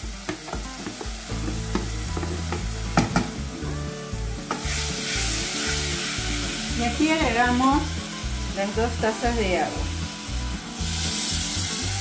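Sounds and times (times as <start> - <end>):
quinoa sizzling in hot oil: 0.0 - 12.0
wooden spoon knocking a pot: 0.2 - 3.4.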